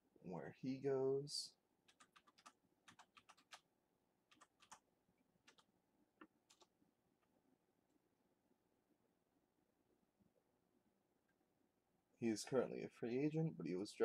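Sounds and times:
keyboard typing: 1.8s - 3.6s, 4.3s - 4.8s, 5.4s - 6.7s.

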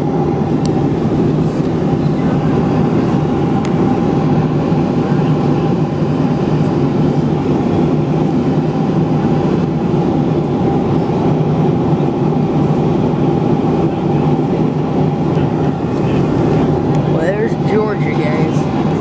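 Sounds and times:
vehicle rumble: 14.4s - 19.0s.

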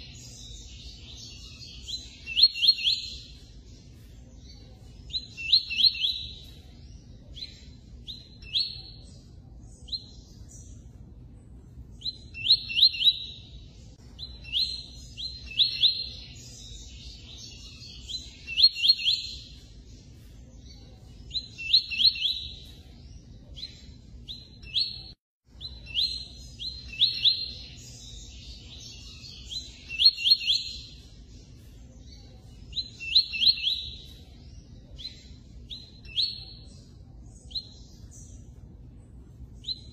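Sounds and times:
bird singing high chirps: 0.0s - 39.9s
faint low rumble: 6.0s - 12.7s, 33.9s - 39.9s.

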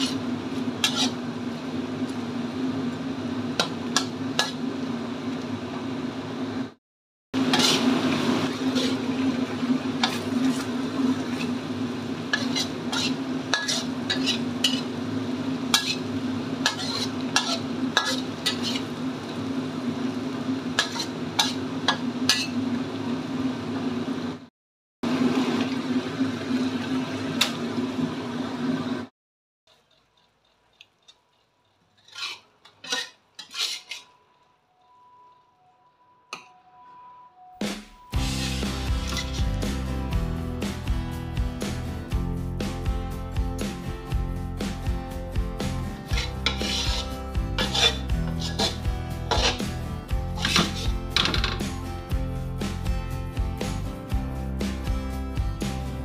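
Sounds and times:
spatula scraping a metal pan: 0.0s - 1.2s, 3.6s - 4.7s, 7.4s - 9.3s, 10.0s - 11.6s, 12.3s - 15.0s, 15.7s - 19.0s, 20.8s - 22.6s, 29.7s - 35.0s, 38.2s - 39.6s, 46.0s - 51.7s
sauce sizzling in a wok: 0.0s - 5.2s, 7.4s - 24.4s, 38.1s - 56.0s.

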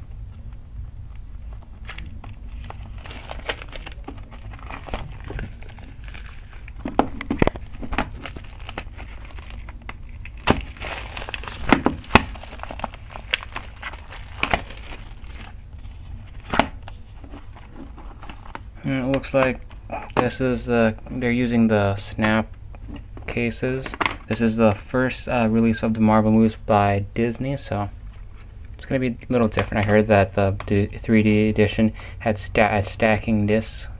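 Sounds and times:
plastic shrink-wrap crinkling: 1.4s - 18.7s.

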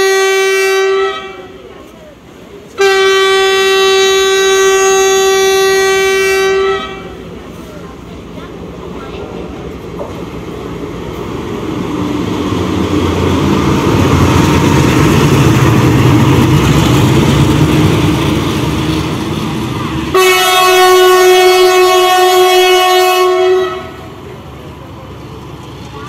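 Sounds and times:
locomotive horn chord: 0.0s - 1.6s, 2.8s - 7.3s, 20.1s - 24.2s
diesel locomotive passing: 0.0s - 26.0s.

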